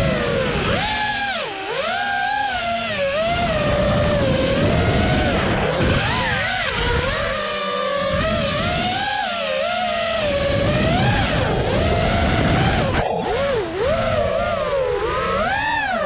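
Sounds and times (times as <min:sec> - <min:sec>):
high-pitched motor whine: 0:00.0 - 0:16.0
low rumbling noise: 0:10.3 - 0:16.0.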